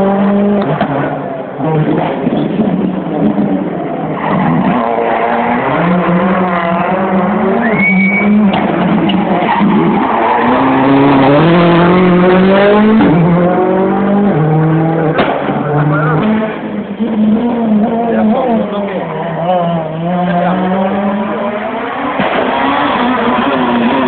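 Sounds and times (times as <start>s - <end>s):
rally car engine revving: 0.0s - 24.0s
tyre squeal: 7.6s - 8.6s.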